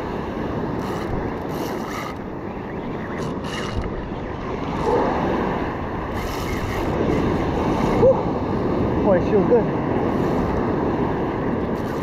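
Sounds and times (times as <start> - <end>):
wind buffeting microphone: 0.0 - 12.0
fishing reel whirring: 0.8 - 2.3, 3.1 - 3.9, 6.1 - 7.4.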